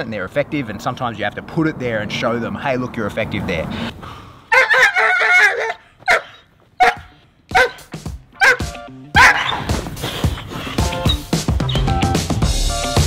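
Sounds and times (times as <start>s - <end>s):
dog barking: 4.5s - 9.7s.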